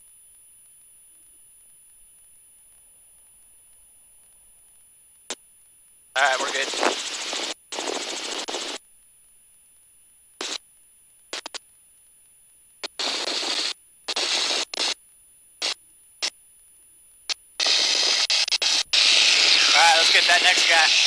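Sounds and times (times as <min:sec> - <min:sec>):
bursts of wind and cabin noise: 0:06.2 - 0:08.8, 0:17.6 - 0:21.0.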